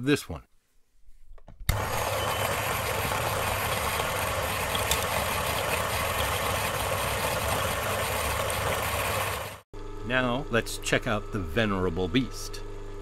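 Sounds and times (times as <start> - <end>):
coffee grinder grinding: 1.7 - 9.6.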